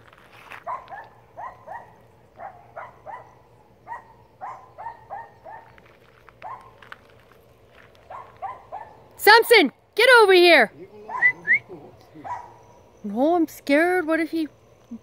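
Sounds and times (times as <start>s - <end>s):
dog barking high-pitched: 0.7s - 5.7s, 6.4s - 6.8s, 8.1s - 9.0s, 11.1s - 11.4s, 12.2s - 12.6s.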